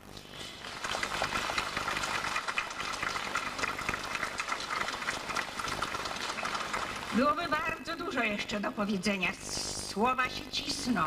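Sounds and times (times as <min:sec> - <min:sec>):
crowd applauding: 0:00.5 - 0:07.7.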